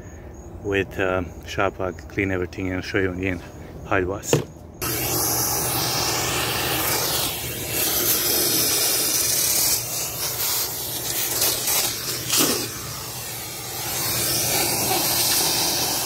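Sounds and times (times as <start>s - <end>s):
shop vac suction hiss: 4.3s - 16.0s.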